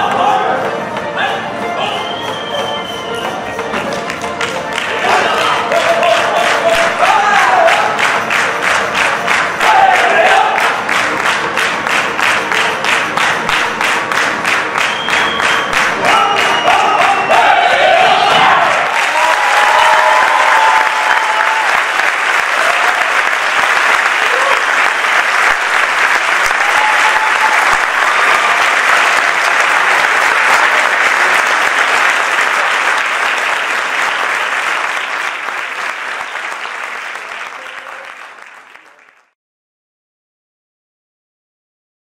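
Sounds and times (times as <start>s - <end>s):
audience applauding: 2.0s - 39.4s.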